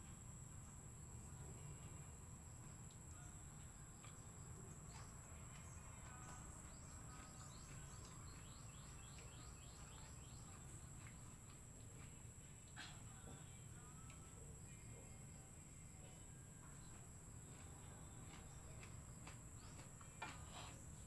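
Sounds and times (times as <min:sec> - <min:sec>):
rapid bird chirps: 0:04.9 - 0:11.4.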